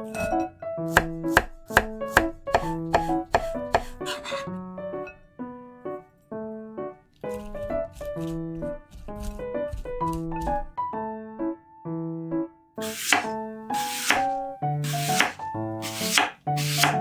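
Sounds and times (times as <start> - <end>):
knife chopping on cutting board: 0.0 - 4.4, 7.3 - 10.7, 12.8 - 17.0
gentle piano music: 0.0 - 17.0.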